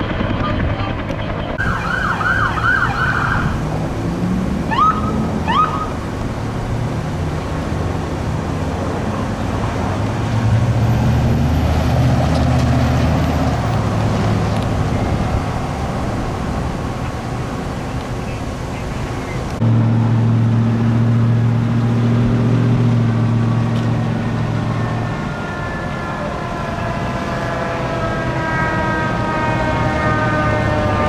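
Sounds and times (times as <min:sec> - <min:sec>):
traffic: 0:00.0 - 0:31.0
vehicle engine passing: 0:00.0 - 0:31.0
electronic siren yelping: 0:01.6 - 0:03.6, 0:04.7 - 0:06.0
siren rising chirps: 0:01.6 - 0:03.6, 0:04.7 - 0:06.0.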